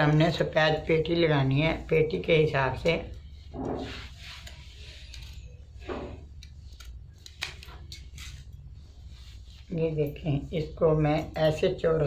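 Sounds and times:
cloth rustling: 0:00.0 - 0:12.0
scissors cutting cloth: 0:02.8 - 0:08.6.

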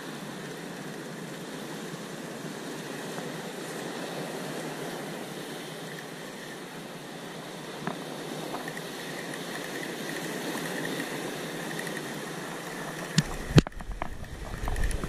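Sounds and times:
surf washing over rocks: 0:00.0 - 0:15.0
fishing reel winding: 0:08.4 - 0:15.0.

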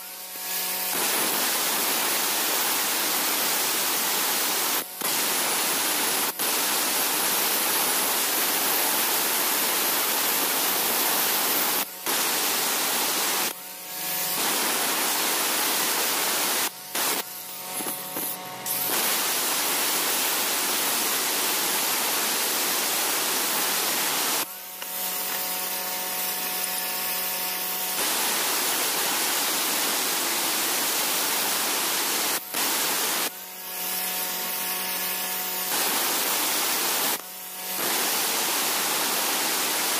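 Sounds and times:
angle grinder grinding stone: 0:06.9 - 0:29.3.

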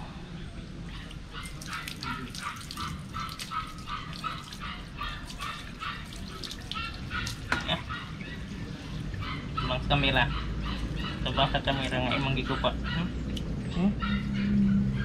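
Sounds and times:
hose water splashing on concrete: 0:01.4 - 0:07.9.

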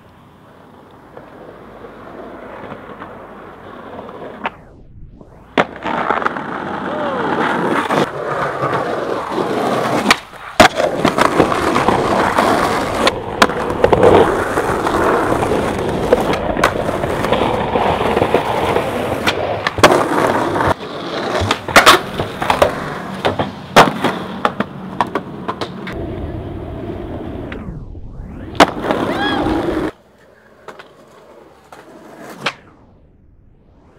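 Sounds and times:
skateboard wheels rolling on pavement: 0:00.0 - 0:33.1
skateboard clacks: 0:05.6 - 0:26.0, 0:28.6 - 0:32.6.

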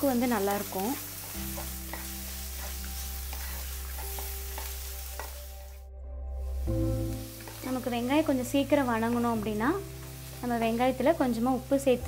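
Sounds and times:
onions sizzling in hot oil: 0:00.0 - 0:05.8, 0:06.4 - 0:12.0
spatula scraping a pan: 0:01.2 - 0:05.4.

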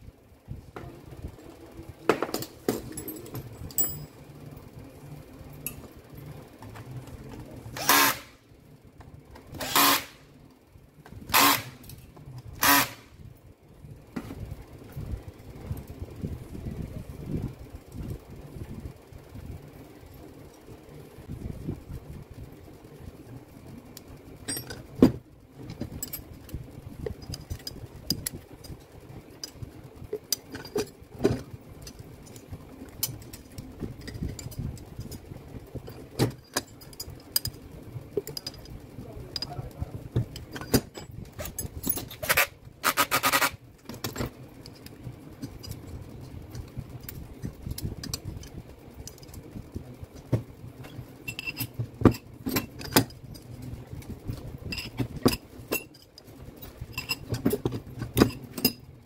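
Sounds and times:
metal clicks and clinks: 0:02.3 - 0:04.2, 0:24.4 - 0:24.9, 0:38.2 - 0:49.4, 0:51.2 - 0:53.5, 0:54.6 - 0:58.8.

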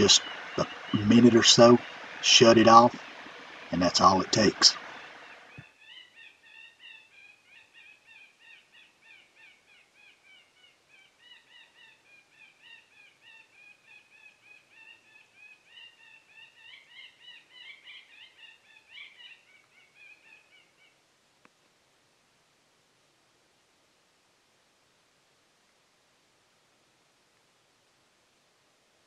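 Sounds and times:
electronic woodpecker calls: 0:00.0 - 0:21.0
faint click: 0:21.4 - 0:21.7.

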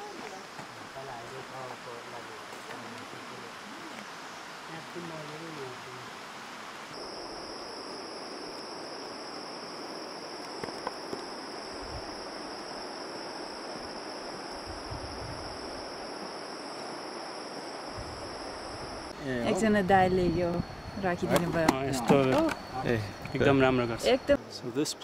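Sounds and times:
insects chirping: 0:00.0 - 0:25.0
wind buffeting microphone: 0:14.5 - 0:15.9.

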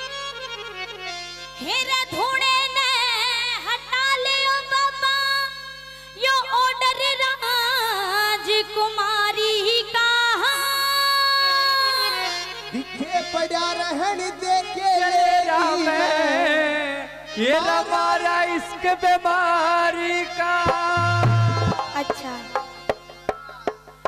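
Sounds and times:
harmonium held notes: 0:00.0 - 0:24.0
woman singing with vibrato: 0:01.6 - 0:12.8.

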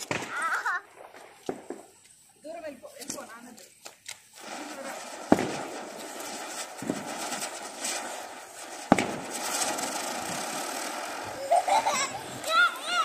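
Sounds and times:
firework bangs: 0:00.0 - 0:02.1, 0:04.2 - 0:13.0
small firework pop: 0:00.0 - 0:02.2, 0:08.9 - 0:09.8
ground fireworks hissing: 0:00.0 - 0:13.0.

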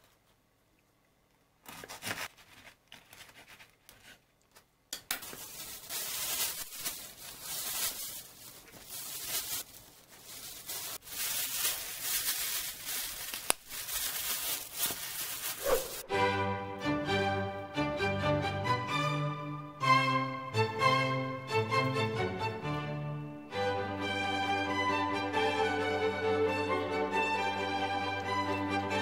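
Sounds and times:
plastic bag crinkling: 0:01.6 - 0:16.1.

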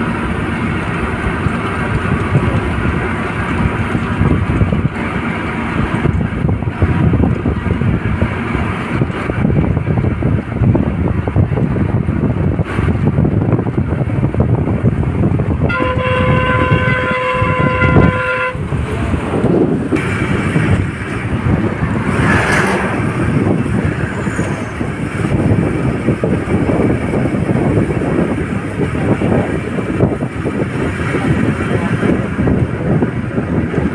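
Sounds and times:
road and wind rush: 0:00.0 - 0:33.9
truck passing close: 0:00.0 - 0:33.9
vehicle horn: 0:15.6 - 0:18.7.

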